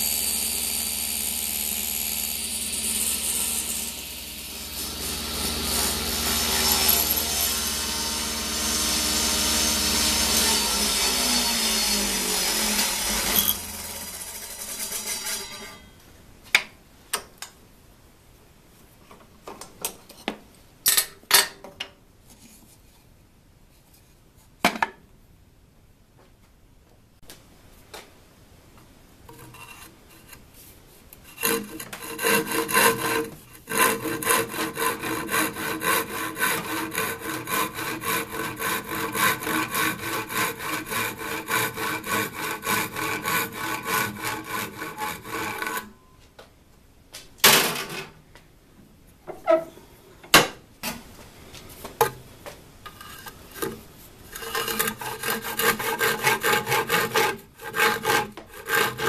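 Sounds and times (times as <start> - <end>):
handsaw cutting plywood: 0.0 - 15.8, 31.3 - 45.9, 53.1 - 59.0.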